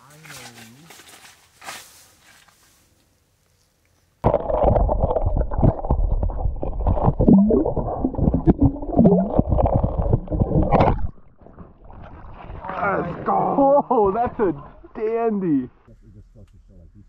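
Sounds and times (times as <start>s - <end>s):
muffled low rumble of water: 4.2s - 17.0s.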